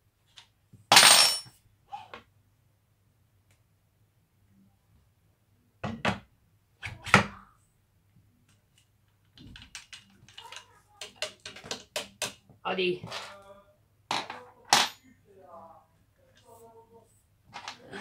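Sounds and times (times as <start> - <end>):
small metal clicks and rattles: 8.5 - 12.4.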